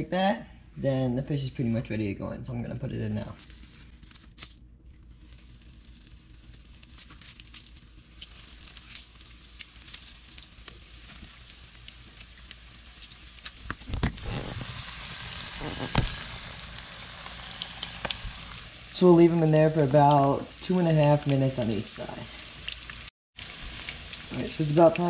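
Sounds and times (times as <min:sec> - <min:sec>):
fish frying in oil: 0:05.1 - 0:25.0.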